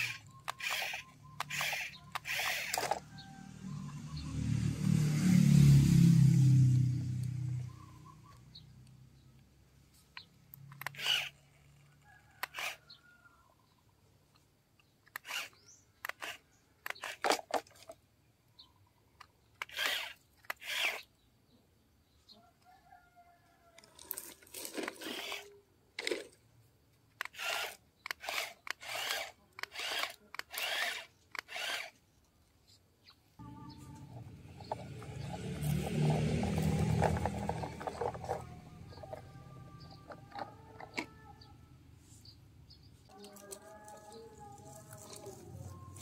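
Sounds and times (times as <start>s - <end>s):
toy electric motors whirring: 0.0s - 3.2s, 10.5s - 13.0s, 15.0s - 18.0s, 19.6s - 21.1s, 23.8s - 26.4s, 27.2s - 32.0s, 34.0s - 41.5s, 43.1s - 46.0s.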